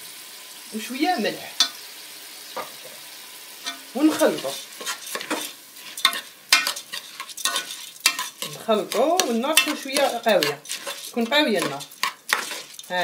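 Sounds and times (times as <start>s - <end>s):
rice sizzling in oil: 0.0s - 13.0s
metal spoon scraping pot: 3.6s - 13.0s.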